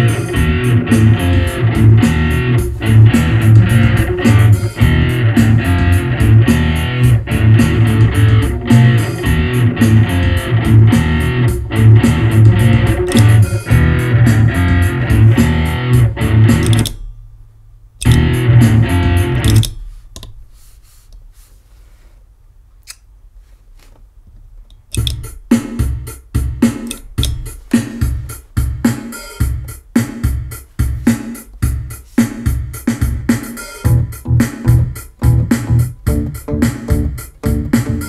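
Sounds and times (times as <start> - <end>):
loud guitar passage: 0.0 - 17.0, 18.0 - 19.6, 33.8 - 38.0
rhythmic guitar strumming: 0.0 - 17.2, 18.0 - 20.0, 25.0 - 38.0.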